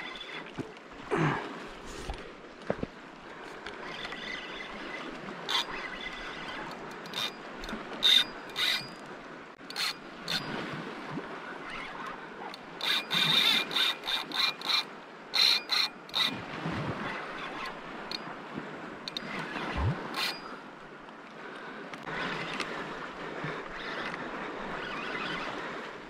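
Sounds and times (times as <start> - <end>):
fishing reel clicking: 3.8 - 9.0, 9.7 - 10.5, 11.7 - 16.4, 19.1 - 20.6.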